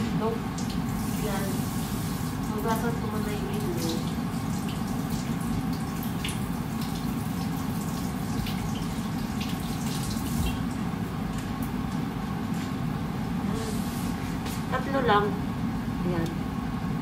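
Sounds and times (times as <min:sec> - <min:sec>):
water drips: 0:00.5 - 0:12.1.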